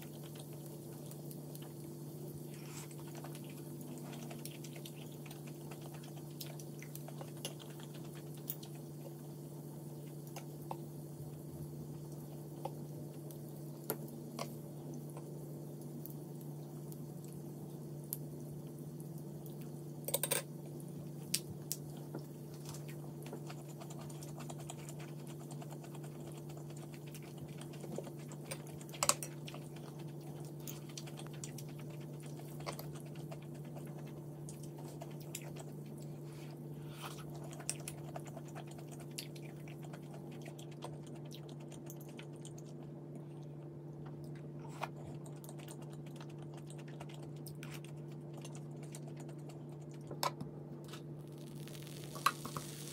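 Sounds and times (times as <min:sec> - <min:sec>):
steady low hum: 0:00.0 - 0:52.9
person chewing: 0:02.4 - 0:09.2, 0:21.8 - 0:50.1
chopsticks and spoon clicking on dishes: 0:20.1 - 0:20.5.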